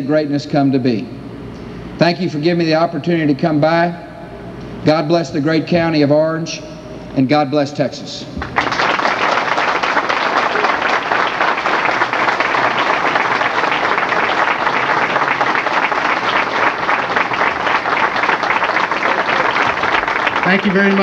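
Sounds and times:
audience applauding: 8.4s - 21.0s.

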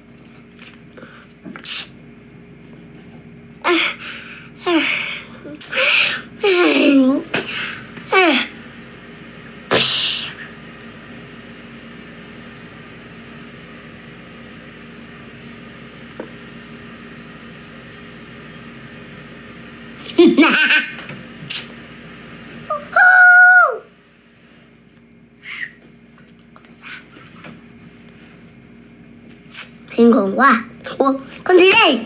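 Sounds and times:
room hum: 0.0s - 32.0s
boy laughing: 20.0s - 21.0s.

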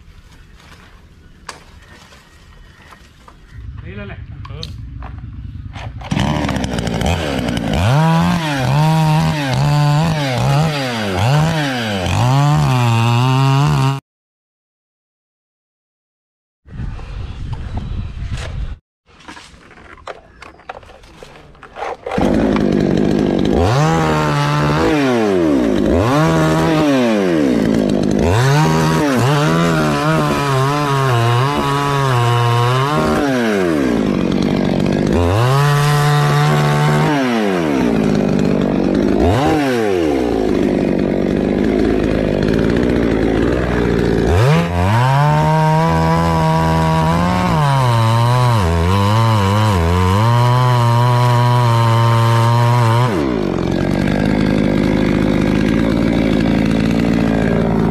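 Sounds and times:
chainsaw revving: 6.0s - 14.0s, 21.4s - 57.9s.

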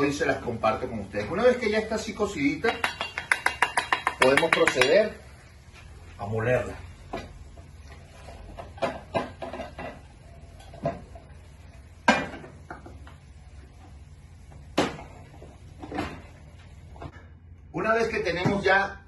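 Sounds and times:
saucepan knocking on plastic jar: 2.7s - 5.0s.

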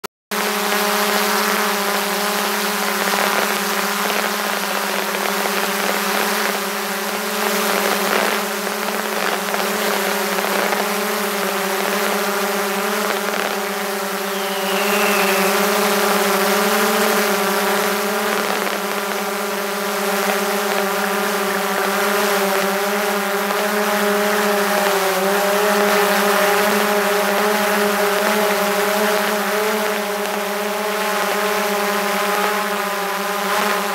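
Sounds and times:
drone propellers humming: 0.7s - 24.1s.

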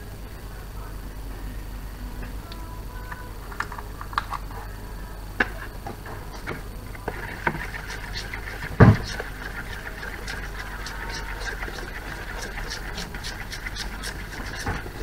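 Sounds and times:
spoon scraping icing in plastic bowl: 6.3s - 15.0s
dull thump: 8.7s - 9.2s.

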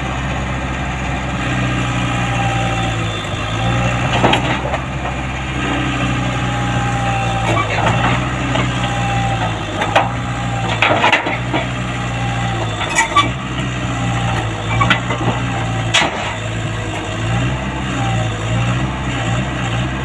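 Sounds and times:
diesel engine running: 0.0s - 20.0s
tracks knocking and creaking on ramps: 4.0s - 5.8s, 6.9s - 17.3s.

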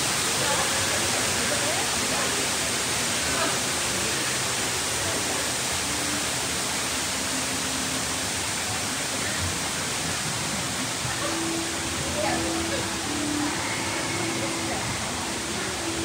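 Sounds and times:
water rushing in a cave: 0.0s - 16.0s.

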